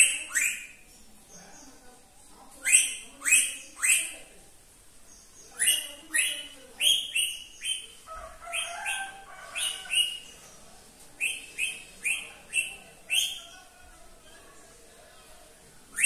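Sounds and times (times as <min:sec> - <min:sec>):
parakeet screeching calls: 0:00.0 - 0:00.8, 0:02.7 - 0:04.2, 0:05.6 - 0:10.4, 0:11.3 - 0:13.6
parakeet soft chattering: 0:02.6 - 0:04.3, 0:05.5 - 0:10.5.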